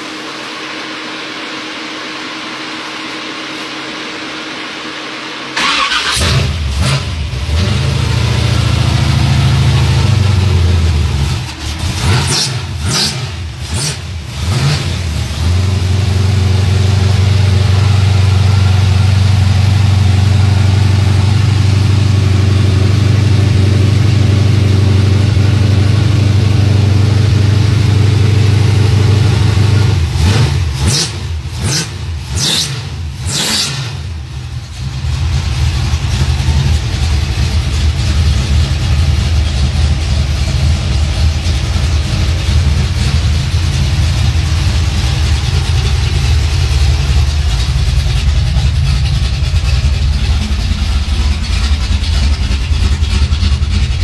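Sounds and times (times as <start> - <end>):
car engine fast idle: 0.0 - 14.4, 34.0 - 54.0
engine clatters: 5.6 - 54.0.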